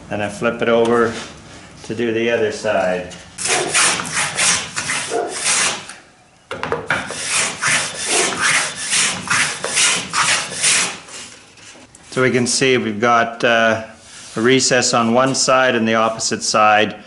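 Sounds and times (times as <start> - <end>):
hand plane shaving wood: 3.4 - 5.9, 7.0 - 11.0.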